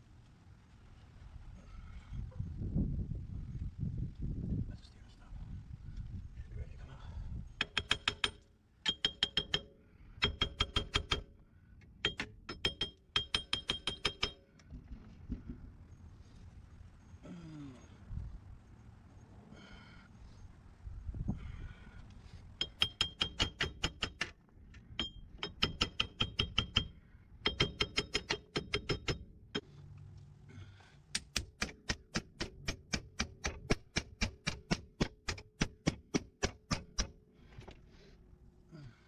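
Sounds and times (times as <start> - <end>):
hammer striking metal: 7.6 - 11.3, 12.0 - 14.4, 22.6 - 24.3, 25.0 - 29.7, 31.2 - 37.2.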